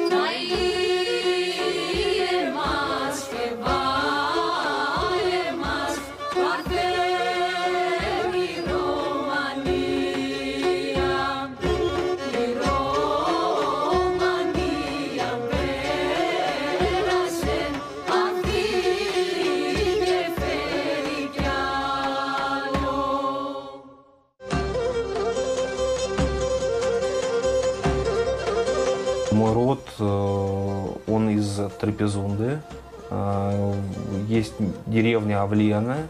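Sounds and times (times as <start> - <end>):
drum strokes: 0.0 - 23.4
ornamented melody: 24.4 - 36.0.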